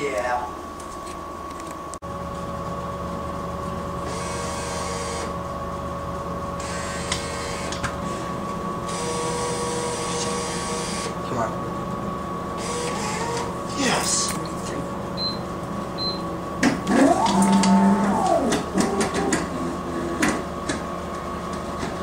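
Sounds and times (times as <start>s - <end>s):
steady electrical hum: 0.0s - 22.0s
bill acceptor motor whirring: 4.0s - 5.4s, 6.6s - 11.2s, 12.4s - 14.3s, 15.4s - 21.8s.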